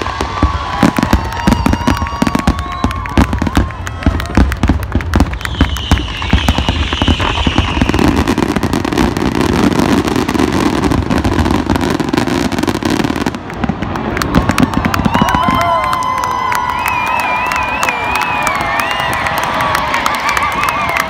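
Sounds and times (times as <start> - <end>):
firework whistle falling in pitch: 0.0 - 3.7, 5.2 - 8.7
fireworks bangs and crackles: 0.0 - 21.0.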